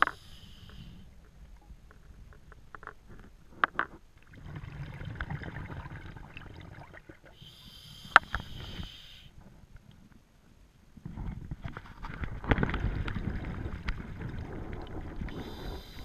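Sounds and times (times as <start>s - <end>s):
diver breathing through regulator: 0.0s - 1.1s, 7.4s - 9.4s, 15.3s - 16.0s.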